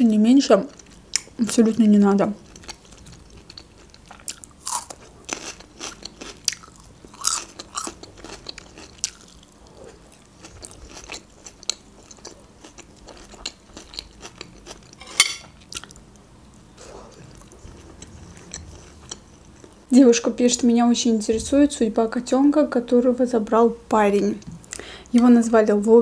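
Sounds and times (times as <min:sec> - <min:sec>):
crunchy chewing of bell pepper: 0:02.4 - 0:16.0, 0:16.8 - 0:19.8.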